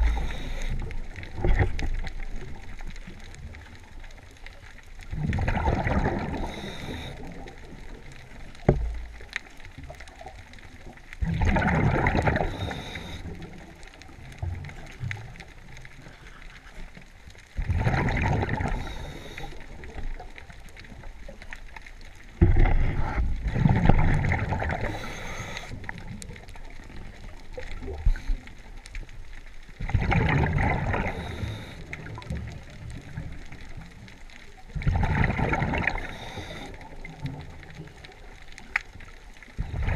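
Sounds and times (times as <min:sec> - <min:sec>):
bubbles rumbling and gurgling: 0:00.0 - 0:39.9.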